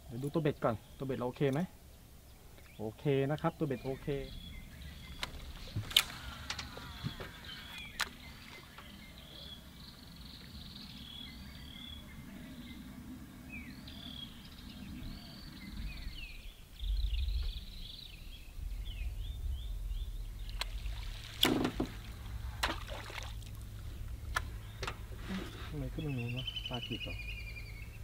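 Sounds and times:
small birds chirping: 0.0s - 28.0s
low rumble: 3.5s - 28.0s
sharp clicks or knocks: 21.4s - 22.0s.

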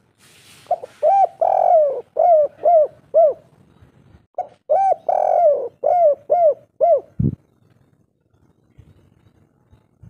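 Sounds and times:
dove cooing: 0.7s - 3.5s, 4.4s - 7.4s.

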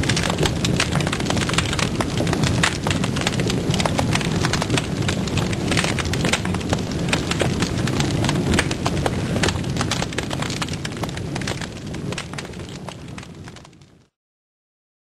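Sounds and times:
low roar of flame: 0.0s - 14.1s
twigs crackling in fire: 0.0s - 14.1s.

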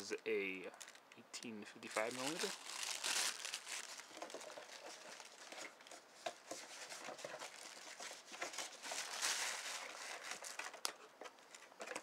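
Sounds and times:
cardboard rustling: 1.9s - 10.9s.

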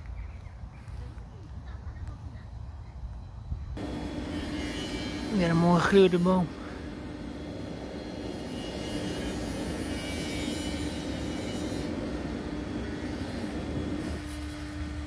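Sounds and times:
constant hum: 0.0s - 15.0s
distant engine drone: 0.1s - 15.0s.

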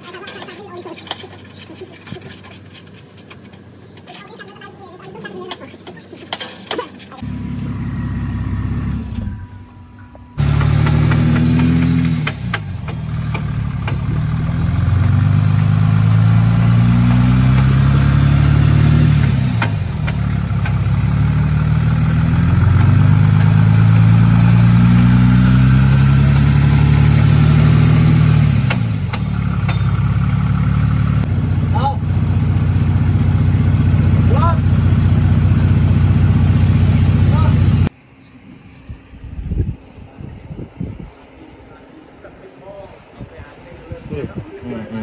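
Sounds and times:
car engine revving: 7.2s - 37.9s.

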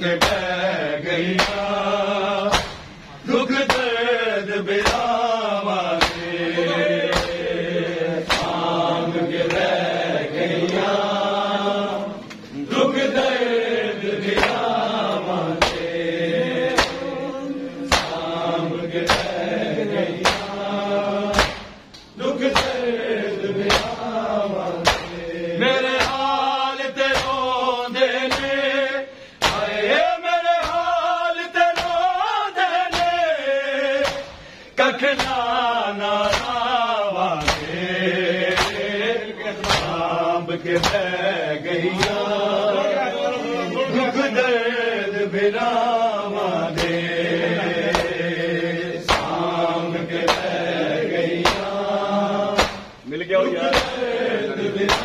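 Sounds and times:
men chanting together: 0.0s - 55.0s
hands slapping chests: 0.2s - 0.5s, 1.4s - 1.7s, 2.5s - 3.0s, 3.6s - 3.9s, 4.8s - 5.1s, 5.9s - 6.4s, 7.1s - 7.5s, 8.2s - 8.7s, 9.3s - 9.8s, 14.2s - 15.9s, 16.6s - 17.2s, 17.9s - 18.3s, 19.0s - 19.5s, 20.2s - 20.6s, 21.3s - 22.9s, 23.6s - 25.2s, 25.9s - 26.4s, 27.0s - 27.5s, 28.2s - 28.6s, 29.4s - 29.8s, 30.6s - 30.9s, 31.7s - 32.0s, 32.9s - 33.2s, 34.0s - 34.5s, 35.2s - 35.4s, 36.2s - 36.8s, 37.4s - 37.8s, 38.4s - 38.9s, 39.6s - 40.1s, 40.7s - 41.1s, 42.0s - 42.2s, 46.7s - 47.0s, 47.9s - 48.2s, 49.0s - 49.5s, 50.2s - 50.6s, 51.4s - 51.8s, 52.5s - 53.0s, 53.6s - 54.0s.

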